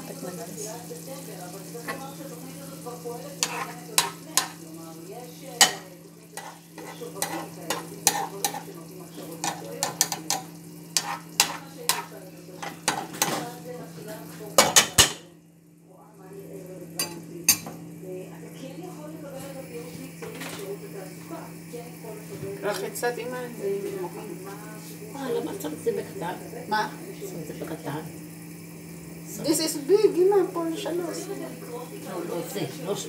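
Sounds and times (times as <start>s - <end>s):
food sizzling in a frying pan: 0.0s - 33.0s
metal spoon scraping a pan: 3.4s - 4.6s, 5.6s - 13.6s.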